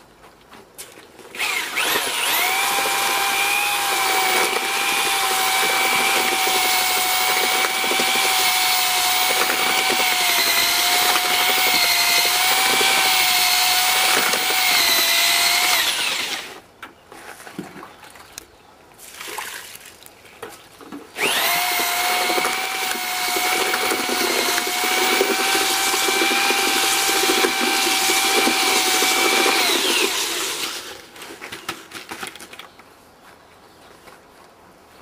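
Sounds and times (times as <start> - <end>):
electric drill motor whining: 1.4 - 16.6, 21.2 - 31.1
concrete mix churning: 1.8 - 16.6, 21.2 - 31.2.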